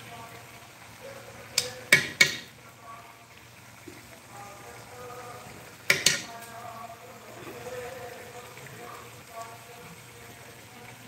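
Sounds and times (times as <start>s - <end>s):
metal spatula knocking on steel pot: 1.6s - 2.5s, 5.9s - 6.3s.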